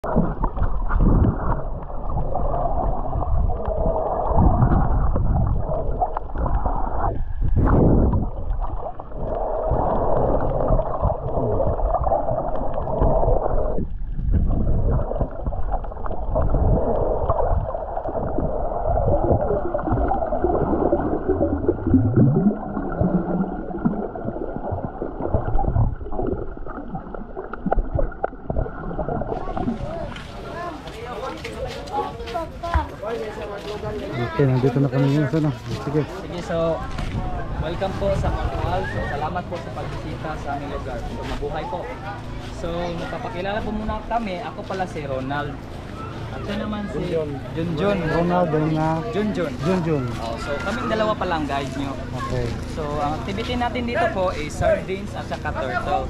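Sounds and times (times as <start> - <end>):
muffled underwater wash: 0.0 - 34.3, 35.4 - 56.0.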